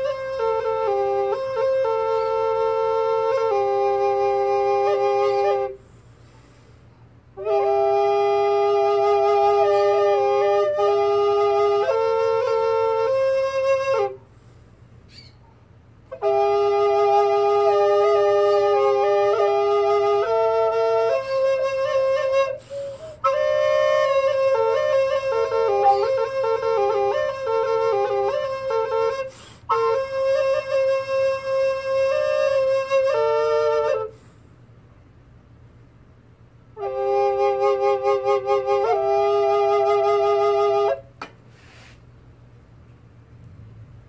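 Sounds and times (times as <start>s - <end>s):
double recorder slow melody: 0.0s - 5.8s, 7.4s - 14.2s, 16.1s - 34.2s, 36.8s - 41.1s.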